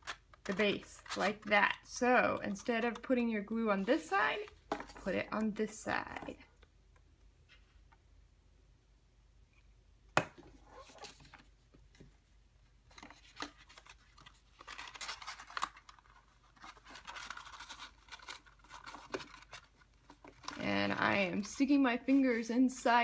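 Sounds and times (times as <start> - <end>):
paper rustling and scraping: 12.9 - 21.3.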